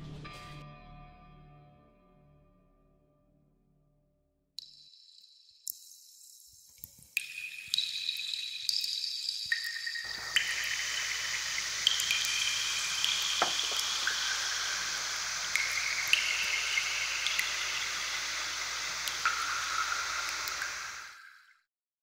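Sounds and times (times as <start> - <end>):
liquid running with high hiss: 10.1 - 21.1.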